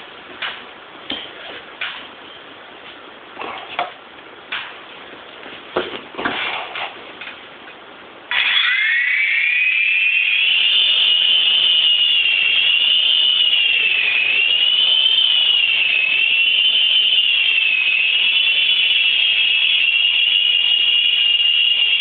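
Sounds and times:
rc helicopter whine: 8.3s - 20.3s.

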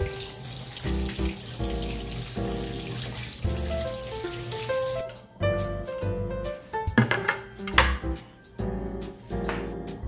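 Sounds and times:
water running from a tap: 0.0s - 5.2s
background music: 0.0s - 10.0s.

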